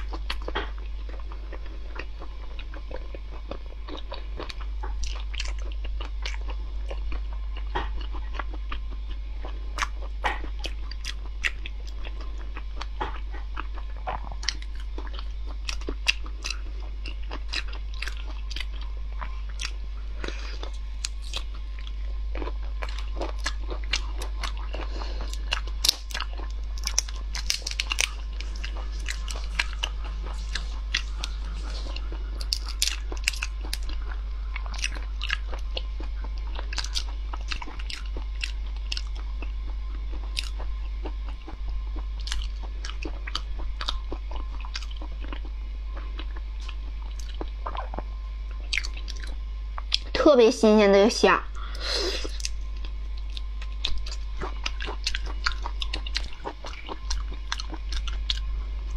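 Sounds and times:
chewing: 0.0s - 50.1s, 52.2s - 58.5s
steady low hum: 0.0s - 58.9s.

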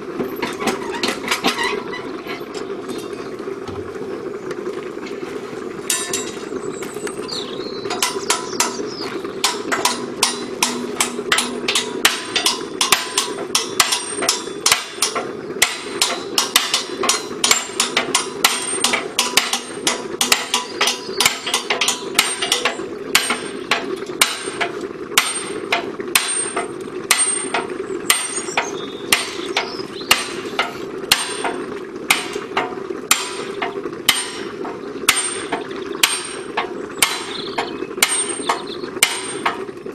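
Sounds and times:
hammer striking metal: 5.9s - 6.4s, 9.4s - 39.6s.

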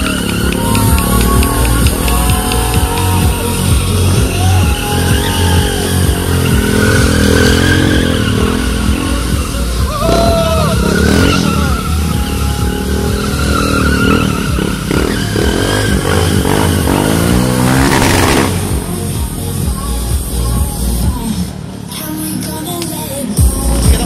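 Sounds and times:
tyre skidding and squealing: 0.0s - 18.9s
music with steady beat: 0.0s - 21.8s, 22.6s - 24.0s
motorcycle engine revving: 0.0s - 21.9s.

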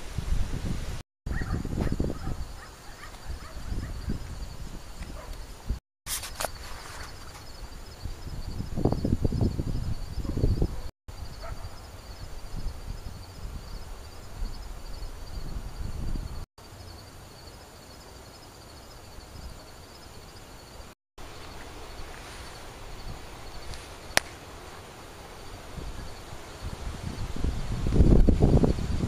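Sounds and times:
wind buffeting microphone: 0.0s - 5.8s, 7.1s - 16.4s, 25.4s - 29.0s
night insects chirping: 1.3s - 5.8s, 6.4s - 29.0s.

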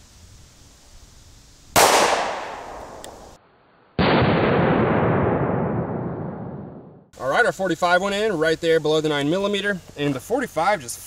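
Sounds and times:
pistol shot echoing: 1.8s - 3.2s
dull blast: 4.0s - 7.1s.

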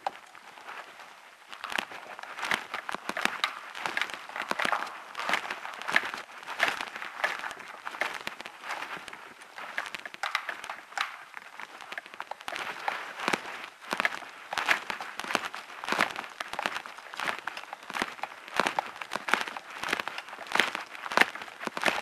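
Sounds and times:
footsteps crunching on loose stone: 0.0s - 22.0s.

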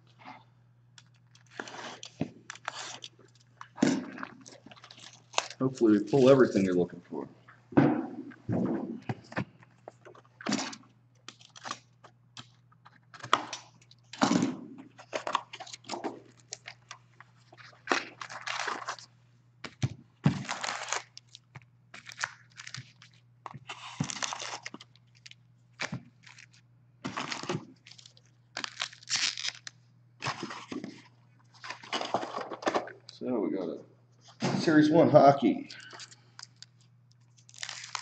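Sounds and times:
foil packs crinkling: 1.0s - 6.7s, 10.0s - 12.5s, 14.9s - 33.0s, 35.8s - 38.0s.

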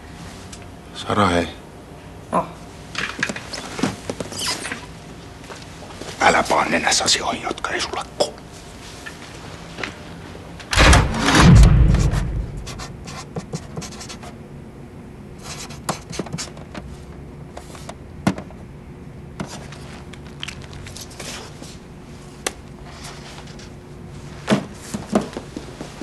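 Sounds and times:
faint steady hum: 0.0s - 26.0s
loud knocks: 10.8s - 13.0s
marker scratching on paper: 12.6s - 14.3s, 15.4s - 16.6s.

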